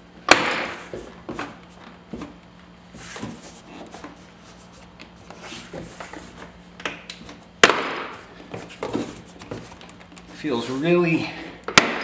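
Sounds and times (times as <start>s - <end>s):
loud sharp snap: 0.3s - 0.8s.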